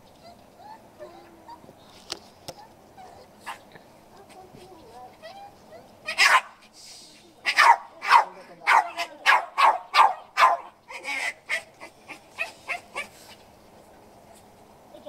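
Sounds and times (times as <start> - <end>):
small dog yipping: 0.1 - 1.7, 2.5 - 3.7, 5.2 - 6.6, 7.4 - 13.2.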